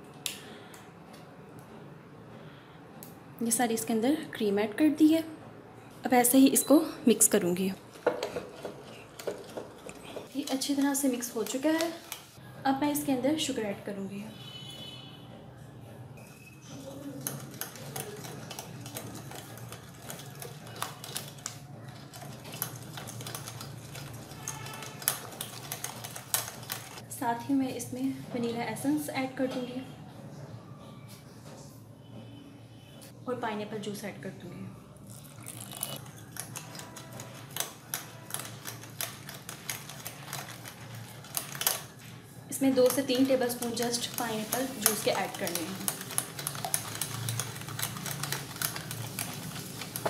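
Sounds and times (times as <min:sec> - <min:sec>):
wet stirring: 0:07.5 - 0:12.4, 0:16.2 - 0:27.0, 0:35.0 - 0:50.0
spoon scraping glass bowl: 0:35.1 - 0:37.2.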